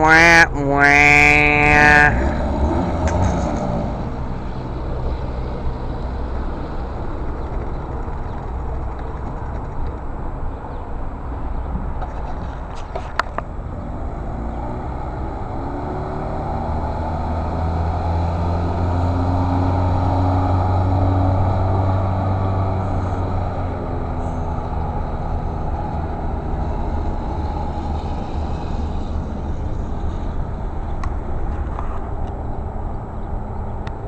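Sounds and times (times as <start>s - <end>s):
outboard motor running: 5.1s - 10.1s.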